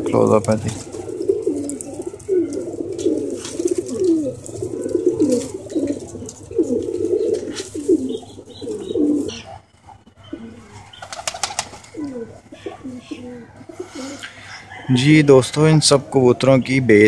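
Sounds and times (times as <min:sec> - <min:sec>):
pigeons cooing: 0:00.0 - 0:17.0.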